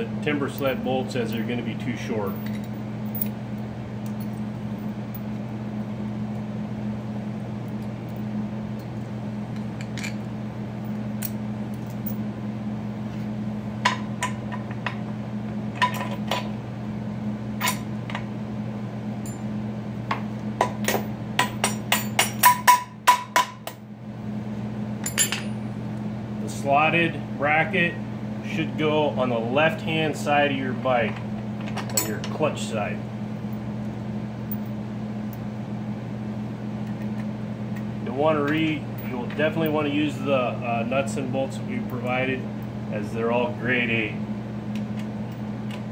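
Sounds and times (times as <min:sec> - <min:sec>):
steady low hum: 0:00.0 - 0:45.9
metal bolts clinking: 0:02.3 - 0:03.4, 0:25.0 - 0:25.6.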